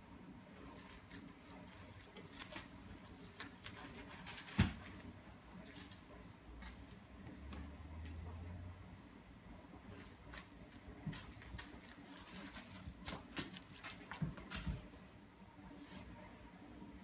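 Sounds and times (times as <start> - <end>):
plastic wrapper crinkling: 0.7 - 6.8, 9.9 - 14.8.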